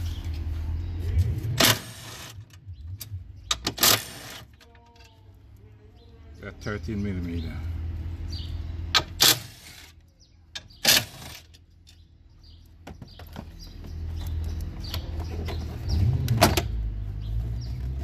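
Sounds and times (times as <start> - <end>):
handling clicks and knocks: 10.5 - 16.7.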